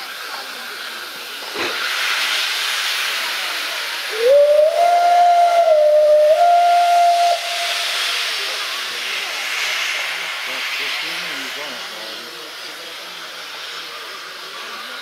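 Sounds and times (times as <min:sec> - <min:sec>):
steam locomotive hissing: 0:00.0 - 0:15.0
steam whistle blast: 0:04.1 - 0:08.3.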